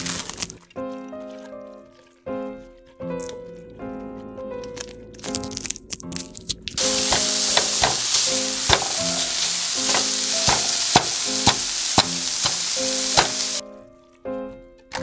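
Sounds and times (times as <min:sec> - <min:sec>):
meat sizzling in a frying pan: 0:06.8 - 0:13.6
spatula clicking against pan: 0:06.9 - 0:13.6.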